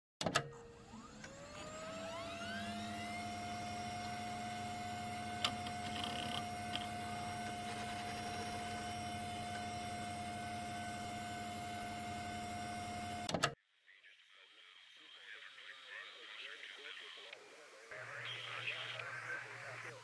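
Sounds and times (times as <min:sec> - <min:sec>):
electronic whine: 0:00.7 - 0:13.3.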